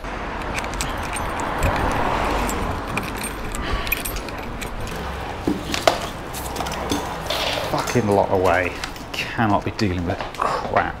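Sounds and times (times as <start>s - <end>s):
vehicle passing: 0.0s - 11.0s
sharp clinks or knocks: 0.4s - 8.4s.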